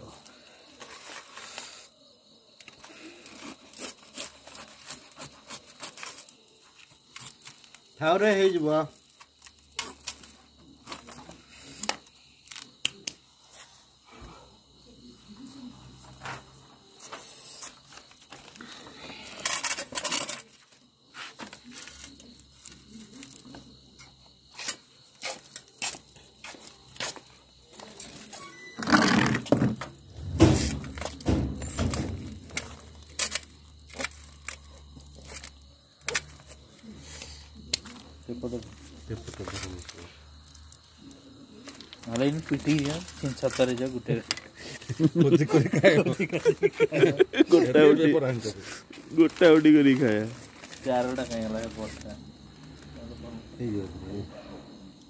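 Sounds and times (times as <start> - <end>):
aluminium foil crumpling: 2.6 - 11.2, 31.9 - 36.6, 37.8 - 45.1, 49.0 - 52.1
foil rustling: 2.8 - 7.9, 41.6 - 45.3, 48.3 - 52.1.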